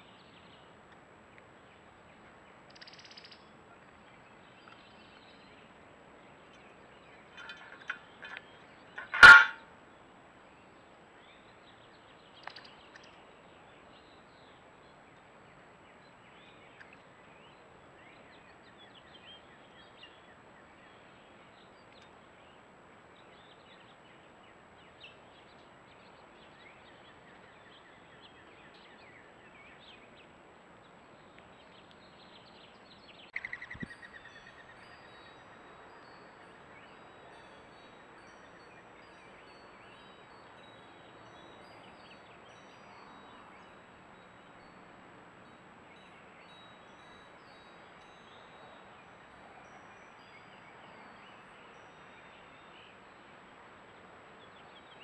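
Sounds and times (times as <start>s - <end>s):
birds calling faintly: 0.0s - 55.0s.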